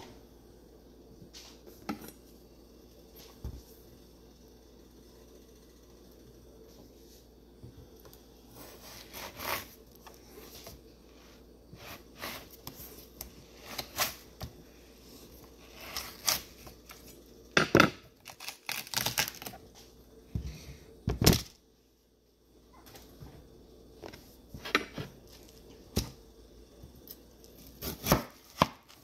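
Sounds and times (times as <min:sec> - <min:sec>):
knife cutting watermelon: 0:08.5 - 0:10.8, 0:15.6 - 0:17.1, 0:27.1 - 0:29.0.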